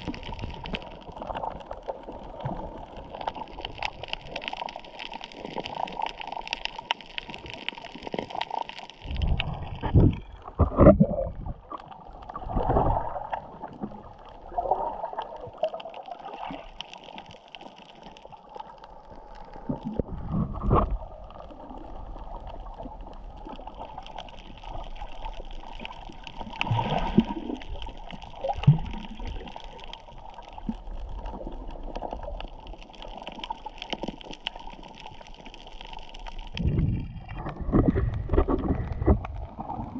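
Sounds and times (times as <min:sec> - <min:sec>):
muffled underwater gurgling: 0:09.0 - 0:16.7, 0:36.5 - 0:39.9.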